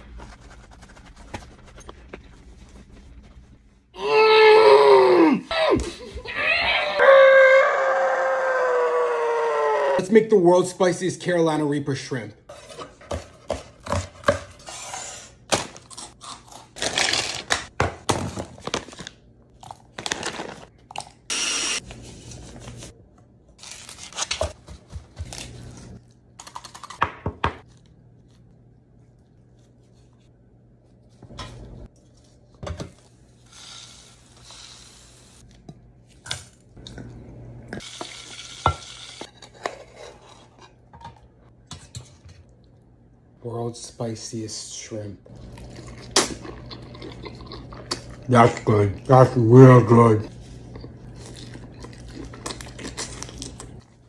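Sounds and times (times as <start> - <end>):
oil frying hiss: 33.5 - 35.4.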